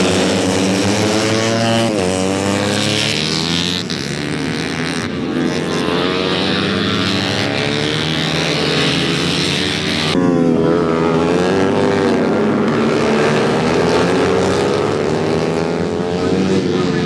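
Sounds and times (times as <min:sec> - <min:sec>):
motorcycle engines revving: 0:00.0 - 0:17.0.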